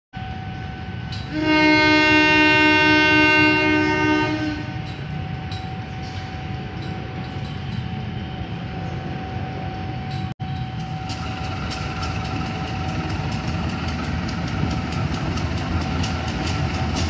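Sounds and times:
train horn blast: 0:01.2 - 0:05.0.

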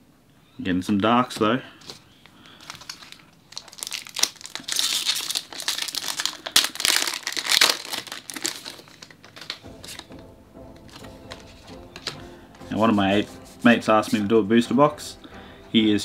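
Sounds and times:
foil wrapper crinkling and tearing: 0:02.5 - 0:10.1.

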